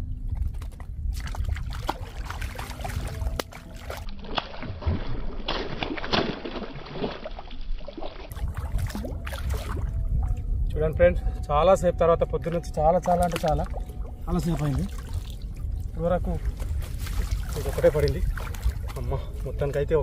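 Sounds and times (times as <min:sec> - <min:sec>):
water sloshing: 0:00.3 - 0:10.6, 0:12.4 - 0:19.9
fish thrashing and splashing: 0:00.6 - 0:10.4, 0:13.0 - 0:19.1.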